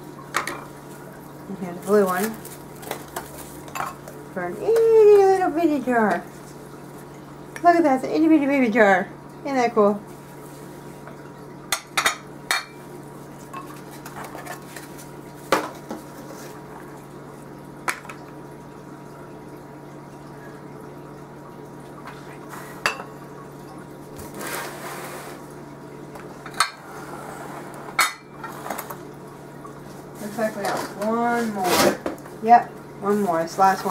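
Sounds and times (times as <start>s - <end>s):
glass containers clinking: 22.8s - 23.2s, 27.9s - 28.6s.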